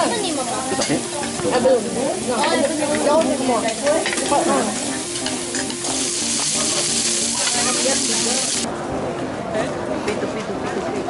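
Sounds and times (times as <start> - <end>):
shellfish sizzling on a griddle: 0.0 - 8.7.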